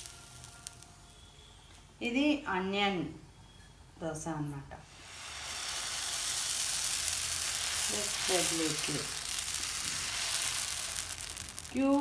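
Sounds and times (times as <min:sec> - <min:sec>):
batter sizzling on hot pan: 0:00.0 - 0:01.6, 0:04.8 - 0:12.0.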